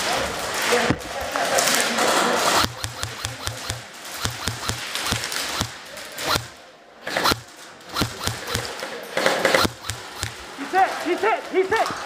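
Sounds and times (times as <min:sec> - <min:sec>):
airsoft guns firing: 0:01.5 - 0:11.1.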